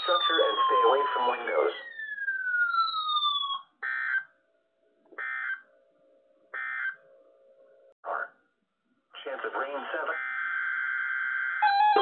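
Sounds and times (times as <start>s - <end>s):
siren-like tone sliding down: 0.0s - 4.2s, 10.2s - 12.0s.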